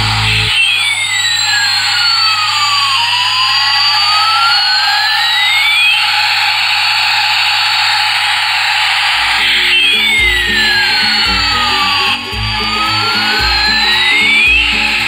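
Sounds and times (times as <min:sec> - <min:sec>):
toy jet engine sound effect: 0:00.0 - 0:15.0.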